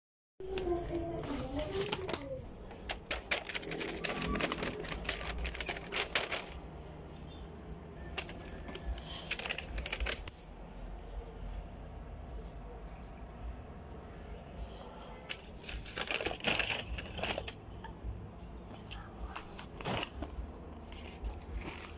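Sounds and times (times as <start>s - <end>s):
paper bag crinkling: 0.5s - 6.8s, 8.0s - 10.5s, 15.3s - 17.6s.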